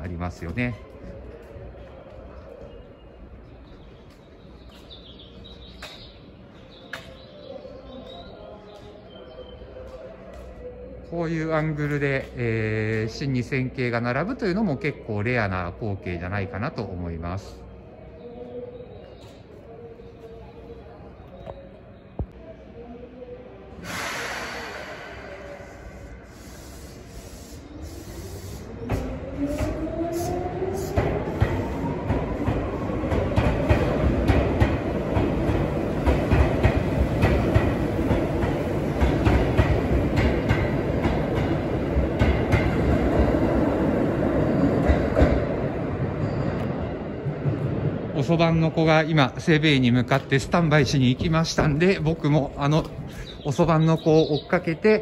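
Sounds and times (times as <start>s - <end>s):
electric trains rumbling: 23.5s - 54.8s
air brake hiss: 23.8s - 28.8s
bird chirps: 53.1s - 54.8s.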